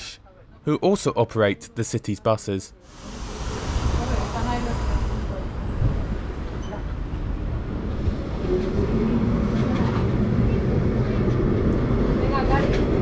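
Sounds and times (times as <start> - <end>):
tram rumbling on rails: 2.8 - 13.0.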